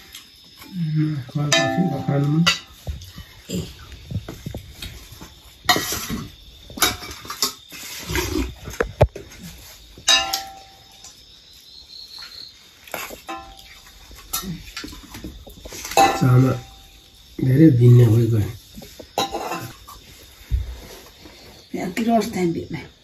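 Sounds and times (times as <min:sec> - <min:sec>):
steel dishes clinking and scraping: 0:01.5 - 0:02.8, 0:10.1 - 0:10.8, 0:13.3 - 0:13.7, 0:15.8 - 0:16.8, 0:19.2 - 0:19.9.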